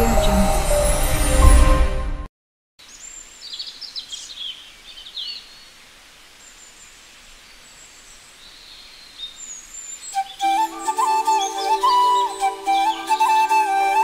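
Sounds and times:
outdoor hiss: 2.8s - 13.8s
birds chirping: 2.8s - 14.0s.

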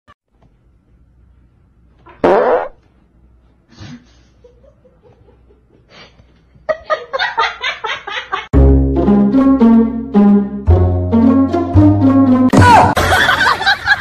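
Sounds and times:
person farting: 2.1s - 2.8s.

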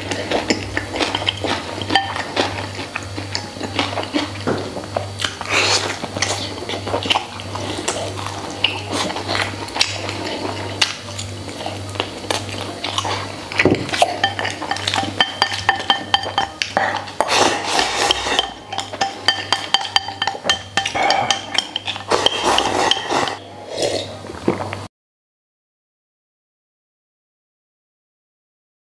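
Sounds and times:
background music with low pulse: 0.0s - 24.6s
chopsticks clinking on ceramic bowl: 13.9s - 17.1s, 17.7s - 23.4s.

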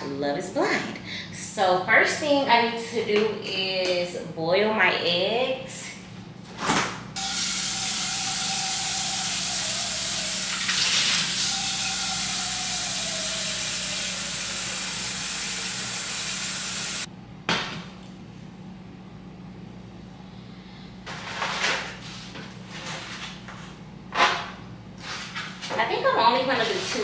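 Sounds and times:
faucet running water into pot: 7.2s - 17.1s.

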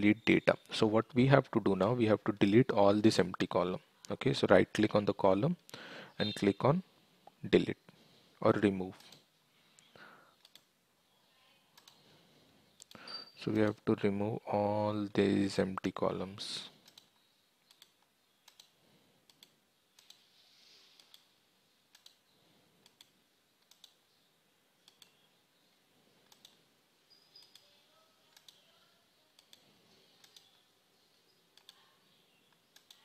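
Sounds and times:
faint mouse clicks: 16.8s - 20.2s, 21.0s - 21.3s, 21.9s - 22.2s, 22.8s - 24.0s, 24.8s - 25.2s, 26.2s - 26.6s, 28.3s - 28.7s, 29.3s - 30.6s, 31.6s - 31.8s, 32.5s - 33.0s.

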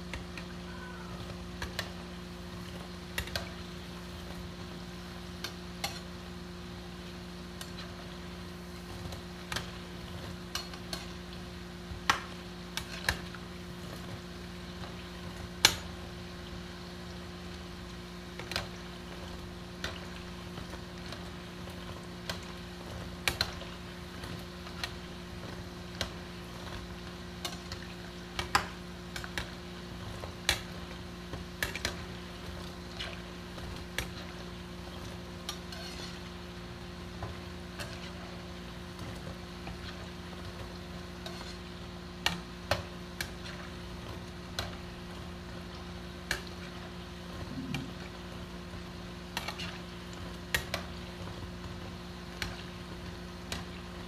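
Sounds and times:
deep-frying sizzle: 0.0s - 54.0s
steady low hum: 0.0s - 54.0s
metal skimmer scraping pan: 35.5s - 36.3s, 41.2s - 41.7s.

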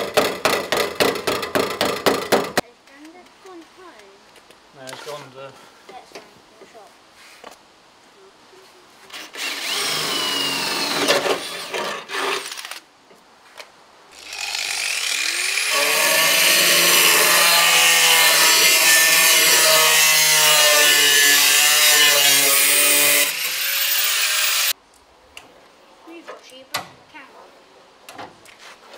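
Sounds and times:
cordless drill boring through steel: 9.1s - 11.8s, 14.2s - 24.7s
angle grinder grinding steel: 14.2s - 24.7s.

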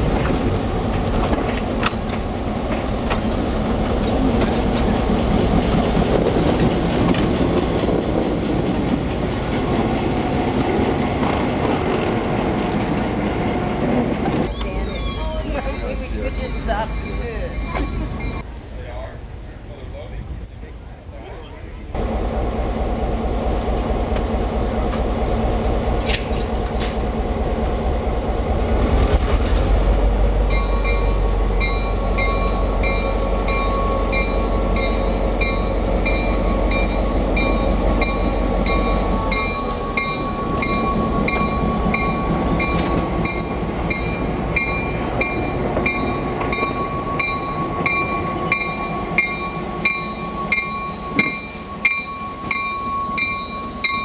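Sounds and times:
diesel locomotive engine: 0.0s - 54.0s
locomotive bell ringing: 9.6s - 18.5s, 30.4s - 54.0s.

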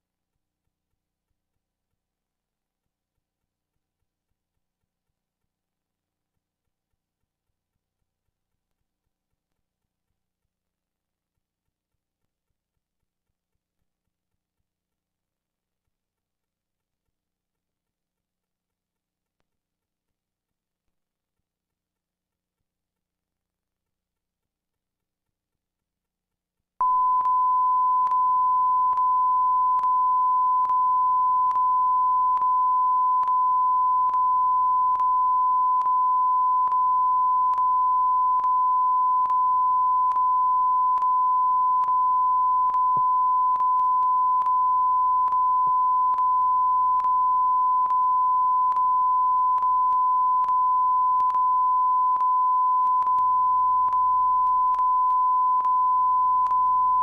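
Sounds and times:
steady test tone: 26.8s - 57.0s.

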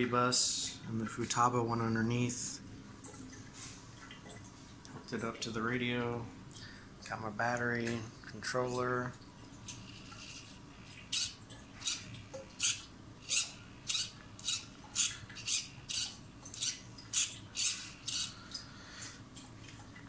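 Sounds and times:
servo whirring in short bursts: 11.1s - 18.4s.

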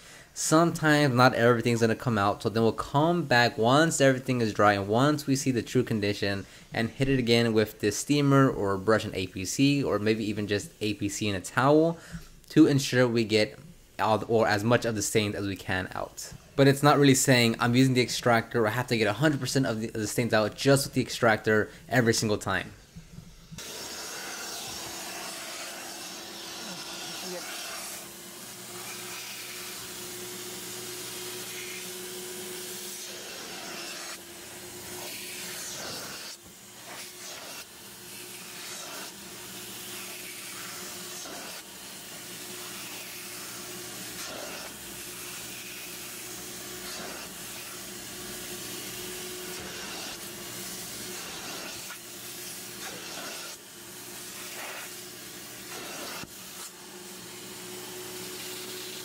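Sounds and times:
carpet extractor motor hum: 22.8s - 59.0s
wand spraying and sucking hiss: 23.5s - 28.2s, 28.8s - 29.9s, 31.4s - 31.9s, 32.9s - 34.2s, 35.0s - 39.2s, 39.8s - 41.7s, 42.6s - 46.2s, 46.8s - 47.9s, 49.5s - 53.6s, 54.2s - 55.1s, 55.7s - 56.8s.

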